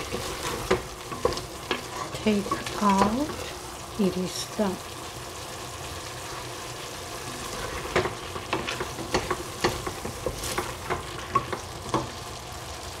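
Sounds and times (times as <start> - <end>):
spatula knocking and scraping a pan: 0.0 - 3.6, 7.3 - 12.2
vegetables sizzling in a saucepan: 0.0 - 13.0.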